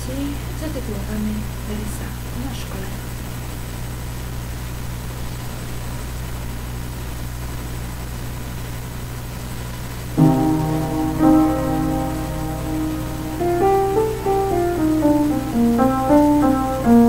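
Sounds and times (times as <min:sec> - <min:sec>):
steady low hum: 0:00.0 - 0:17.0
upright piano chords: 0:10.2 - 0:17.0.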